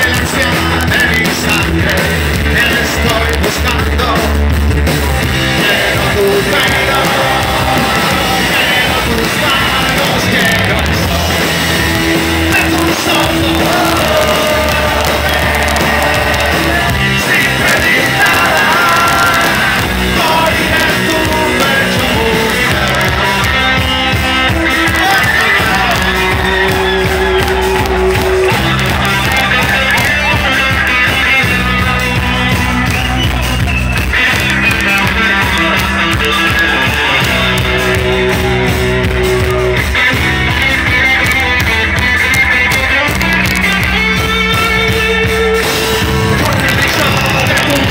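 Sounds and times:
man singing: 0.0s - 4.5s, 5.4s - 11.6s, 12.4s - 27.4s, 34.2s - 39.8s, 46.2s - 47.9s
bass guitar: 0.0s - 47.9s
drums: 0.0s - 47.9s
electric guitar: 0.0s - 47.9s.

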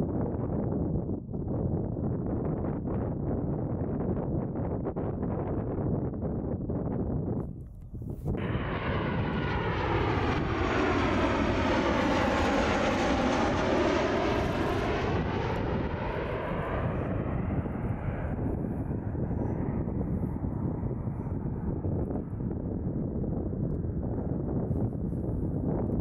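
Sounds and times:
airliner passing with whoosh: 8.1s - 26.0s.

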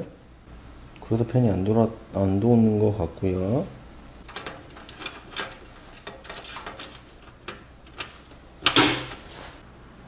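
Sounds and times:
cables clicking and rattling: 4.2s - 9.2s.

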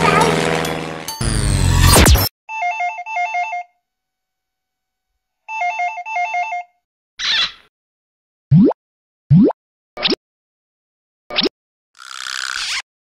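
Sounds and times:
electronic telephone ringtone: 2.5s - 3.8s, 5.5s - 6.7s.

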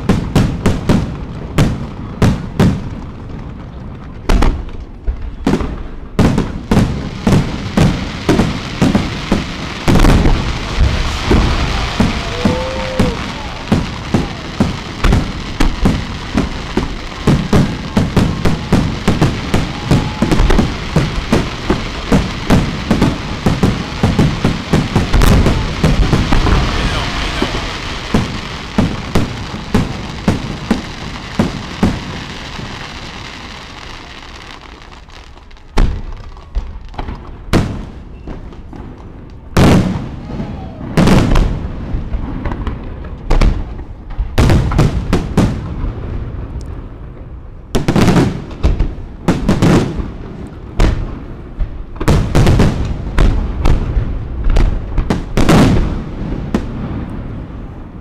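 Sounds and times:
fireworks crackling: 0.0s - 58.0s
firework booms echoing: 4.2s - 57.9s.

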